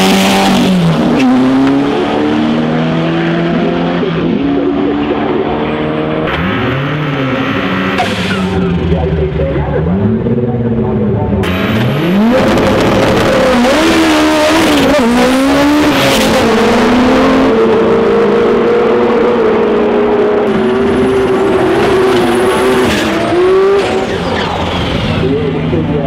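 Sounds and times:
engines revving hard: 0:00.0 - 0:26.0.

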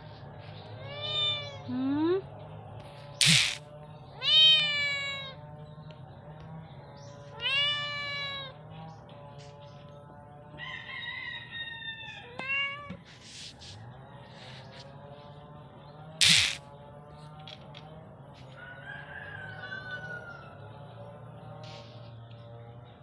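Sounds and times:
cat meowing: 0:00.8 - 0:01.7, 0:03.2 - 0:03.6, 0:04.2 - 0:05.4, 0:07.4 - 0:08.6, 0:12.1 - 0:13.0, 0:16.2 - 0:16.6
sharp noisy burst: 0:03.2 - 0:03.6, 0:16.2 - 0:16.6
rooster crowing: 0:10.5 - 0:12.4, 0:18.5 - 0:20.8.

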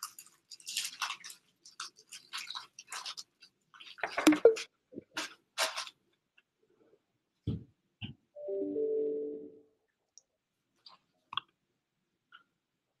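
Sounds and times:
scratchy rustling and clicking: 0:00.0 - 0:06.0.

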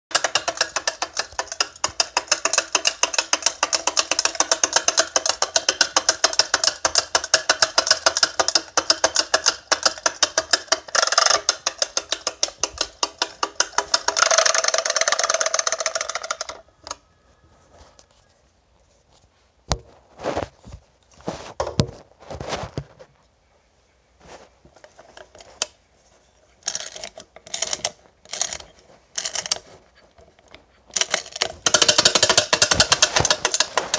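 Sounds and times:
clockwork toy clicking rattle: 0:00.1 - 0:17.0, 0:26.6 - 0:29.6, 0:30.9 - 0:33.9
plastic toy knocks and taps: 0:00.1 - 0:17.0, 0:31.0 - 0:33.9.

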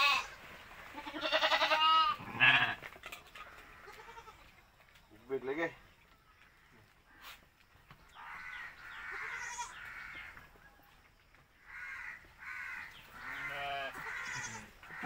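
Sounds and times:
harsh animal calls: 0:08.1 - 0:10.5, 0:11.6 - 0:15.0.

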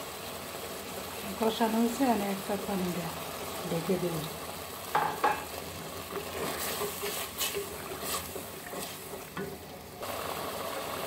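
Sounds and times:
curry bubbling and sizzling: 0:00.0 - 0:11.0
spatula knocking against pan: 0:04.9 - 0:05.6
spatula scraping a pan: 0:06.1 - 0:09.5.

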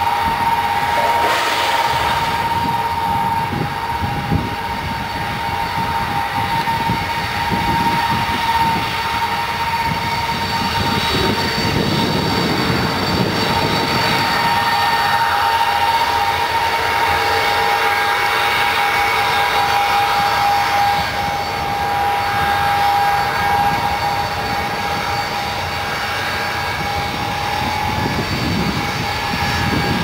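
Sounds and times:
jet engines whining: 0:00.0 - 0:30.0
high whistle: 0:00.6 - 0:03.8
low rumble: 0:00.8 - 0:04.2.

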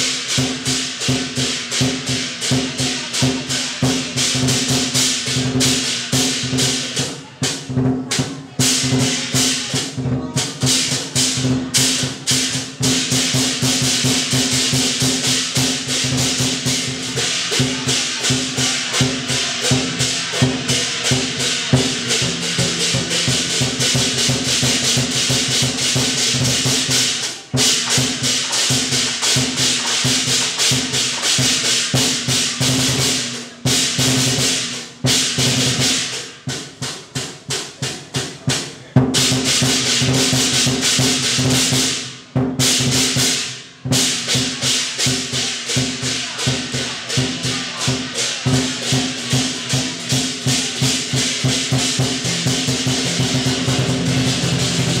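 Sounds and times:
cymbals: 0:00.0 - 0:55.0
drums: 0:00.0 - 0:55.0
gongs: 0:10.7 - 0:36.1, 0:43.4 - 0:55.0.

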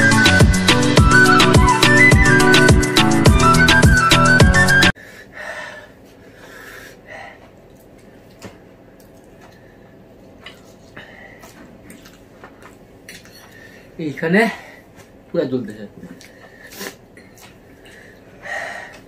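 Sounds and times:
background music: 0:00.0 - 0:05.0
people breathing and sniffing: 0:05.0 - 0:08.3, 0:09.4 - 0:12.6, 0:13.3 - 0:15.2, 0:16.2 - 0:17.1, 0:17.7 - 0:19.0.

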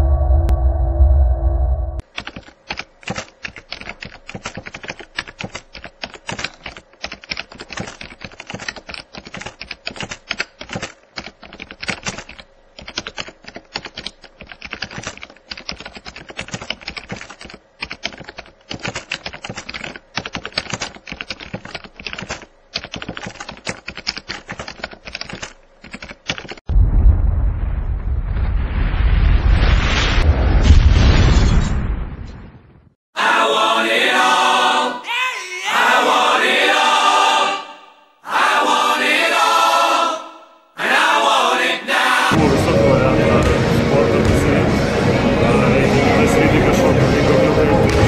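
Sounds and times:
rapid keyboard typing: 0:02.0 - 0:26.7.

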